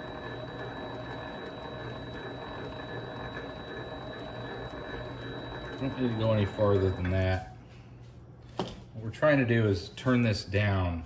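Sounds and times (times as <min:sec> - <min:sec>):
lathe motor humming: 0:00.0 - 0:07.2.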